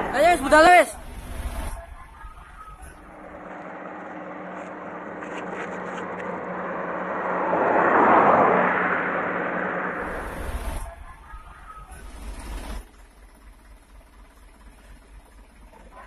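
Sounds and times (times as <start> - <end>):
vehicle passing: 0.0 - 12.8
low engine hum: 0.0 - 16.0.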